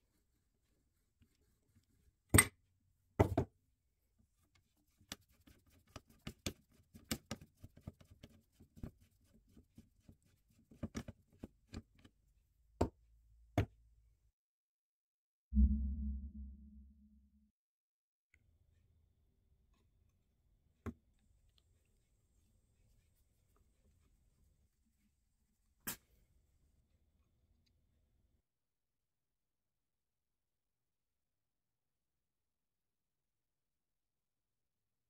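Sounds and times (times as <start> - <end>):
low tone: 15.5 - 17.5.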